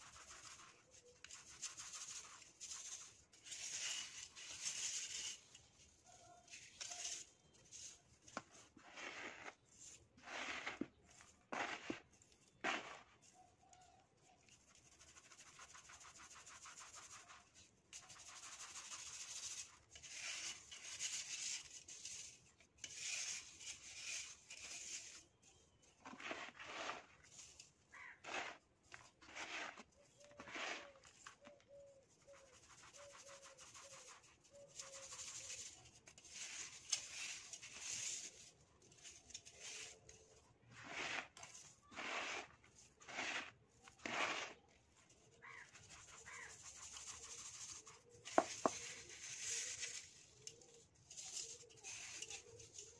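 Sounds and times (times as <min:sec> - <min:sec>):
hands rubbing loose sand: 0:40.7 - 0:44.7.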